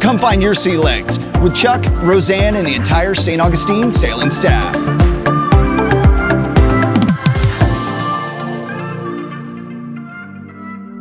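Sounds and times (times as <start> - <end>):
electronic drum beat: 0.3 - 7.9
held synth notes: 0.5 - 10.4.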